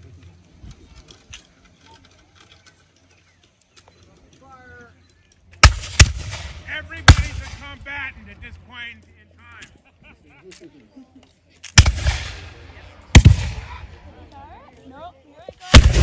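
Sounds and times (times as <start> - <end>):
musket shots with echo: 5.6 - 7.8, 11.7 - 14.0, 15.7 - 16.0.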